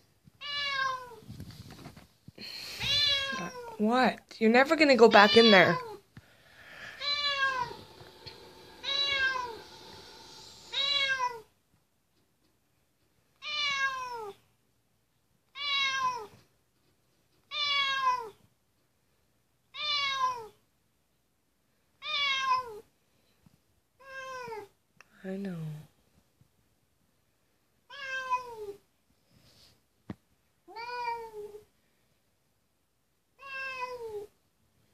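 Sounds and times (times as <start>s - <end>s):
cat meowing: 0.4s - 1.2s, 2.8s - 3.8s, 5.2s - 6.0s, 6.8s - 11.5s, 13.4s - 14.4s, 15.5s - 16.4s, 17.5s - 18.4s, 19.7s - 20.6s, 22.0s - 22.8s, 24.0s - 24.7s, 27.9s - 28.8s, 30.7s - 31.6s, 33.4s - 34.3s.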